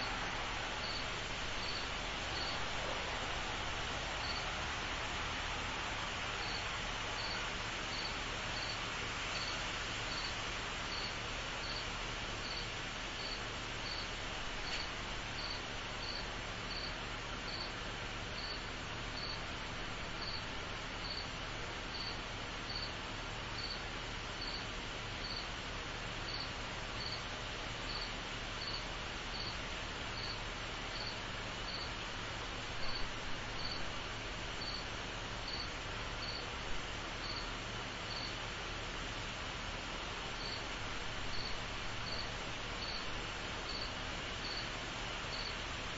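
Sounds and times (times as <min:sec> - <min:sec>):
continuous insect hum: 0:00.0 - 0:45.9
cricket chirping: 0:00.8 - 0:02.6, 0:04.2 - 0:04.5, 0:06.4 - 0:08.8, 0:10.1 - 0:10.3, 0:10.9 - 0:11.8, 0:12.4 - 0:12.6, 0:13.2 - 0:16.9, 0:18.4 - 0:18.6, 0:19.2 - 0:19.4, 0:20.2 - 0:20.4, 0:21.0 - 0:21.3, 0:21.9 - 0:22.9, 0:23.6 - 0:23.8, 0:24.4 - 0:24.6, 0:25.2 - 0:25.5, 0:26.3 - 0:27.2, 0:27.9 - 0:29.5, 0:30.2 - 0:31.9, 0:32.8 - 0:33.8, 0:34.6 - 0:34.9, 0:35.5 - 0:36.4, 0:37.2 - 0:37.5, 0:38.1 - 0:38.4, 0:40.4 - 0:40.6, 0:41.3 - 0:43.0, 0:43.7 - 0:44.7, 0:45.3 - 0:45.6.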